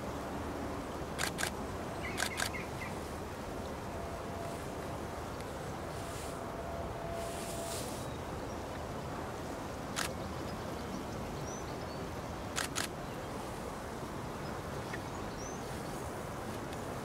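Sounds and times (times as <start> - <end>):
open-air background noise: 0.0 - 17.0
sharp clicks: 1.2 - 1.6, 2.2 - 2.6.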